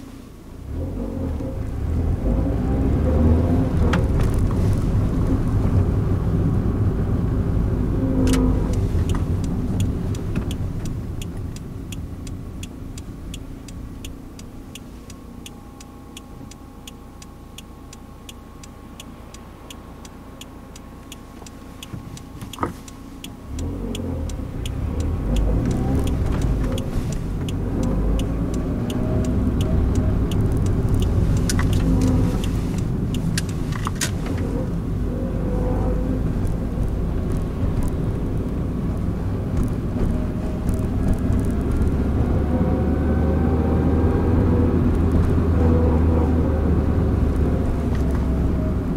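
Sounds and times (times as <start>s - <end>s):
car engine and road noise: 0.0s - 48.9s
faint regular light ticking: 8.3s - 33.6s.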